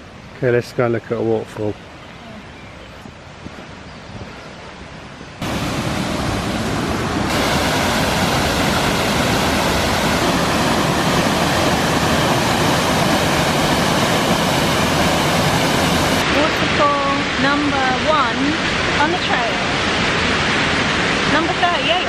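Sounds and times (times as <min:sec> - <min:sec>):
waterfall roaring: 0:05.4 - 0:22.0.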